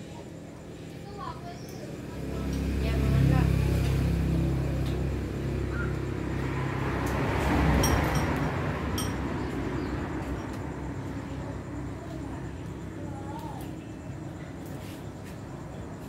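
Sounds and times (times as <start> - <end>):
vehicle engine humming: 1.2 - 16.0
passing vehicle road noise: 1.9 - 13.0.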